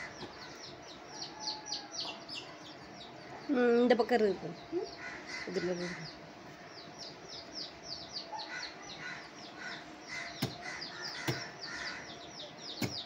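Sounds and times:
small birds chirping: 0.0 - 13.0
sharp knocks: 10.4 - 11.5.

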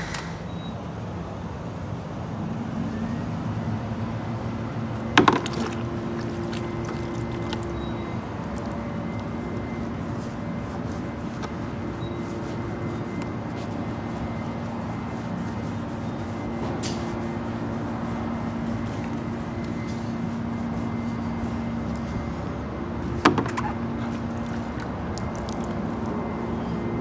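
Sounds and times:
squeegee scraping skin: 5.4 - 22.0, 24.0 - 26.2.

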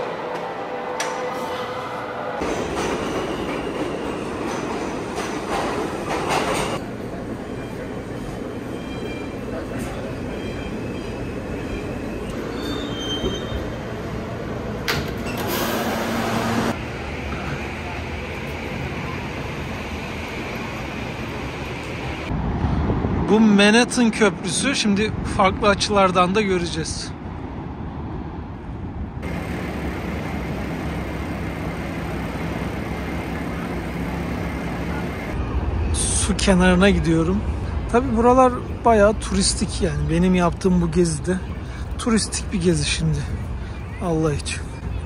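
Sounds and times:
subway train rumble: 0.0 - 45.0
wheel squeals: 10.4 - 13.8.

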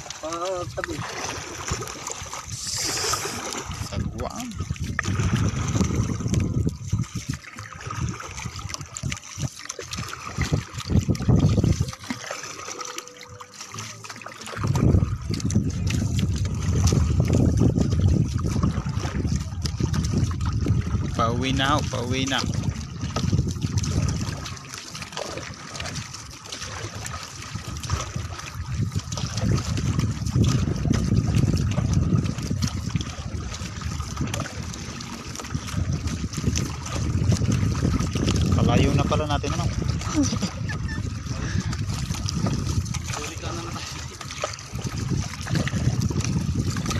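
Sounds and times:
wind rumbling on microphone: 0.0 - 12.2, 14.5 - 46.9
water splashing around canoe: 0.0 - 46.9
low rumble: 2.6 - 9.1.

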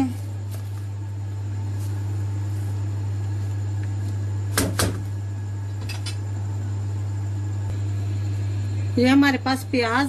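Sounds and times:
low hum: 0.0 - 10.0
sharp knocks: 4.5 - 5.0.

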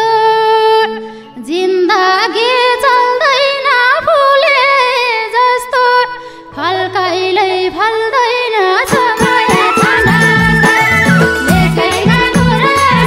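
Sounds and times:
woman singing into microphone: 0.0 - 13.0
band drums and instruments: 8.9 - 13.0.

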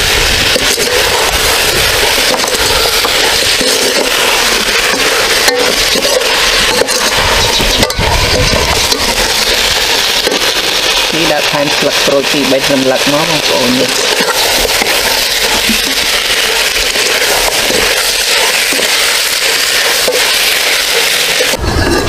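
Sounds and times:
food sizzling in a pot: 0.0 - 22.0.

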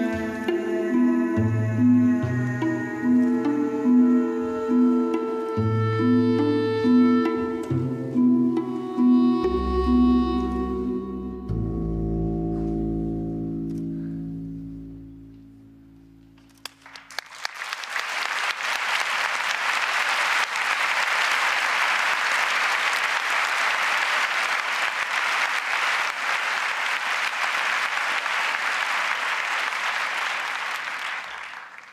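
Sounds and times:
audience applauding: 16.6 - 31.9.

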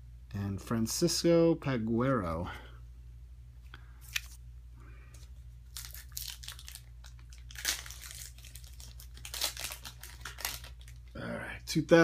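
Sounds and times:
plastic wrapper crinkling and tearing: 5.6 - 11.2.

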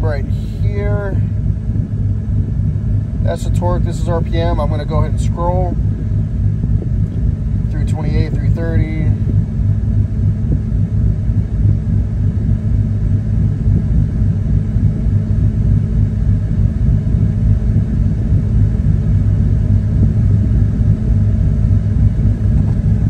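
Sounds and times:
truck cab engine rumble: 0.0 - 23.0.

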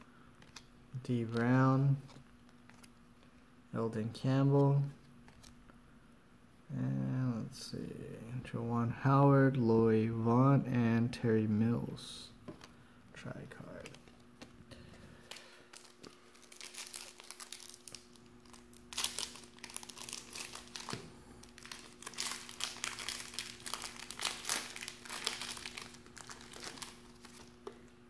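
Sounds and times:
foil wrapper crinkling: 14.0 - 27.7.

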